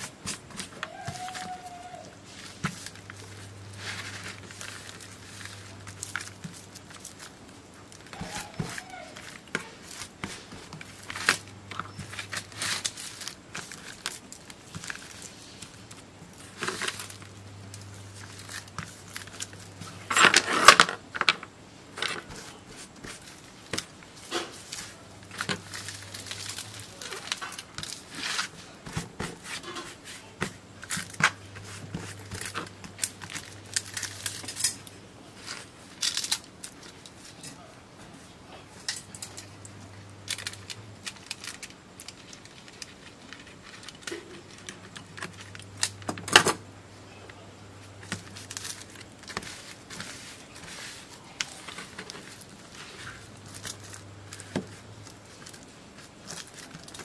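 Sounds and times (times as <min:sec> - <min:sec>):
paper crinkling and rustling: 0:00.0 - 0:57.0.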